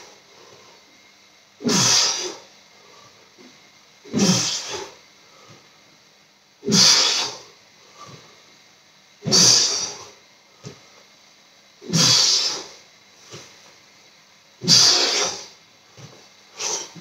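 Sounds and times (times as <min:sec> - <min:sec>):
faint breaths: 0:00.0 - 0:05.9, 0:06.7 - 0:08.6, 0:14.7 - 0:17.0
man exhaling forcefully: 0:01.6 - 0:02.4, 0:04.1 - 0:05.0, 0:06.6 - 0:08.2, 0:09.2 - 0:10.2, 0:11.8 - 0:12.8, 0:14.6 - 0:15.5, 0:16.6 - 0:17.0.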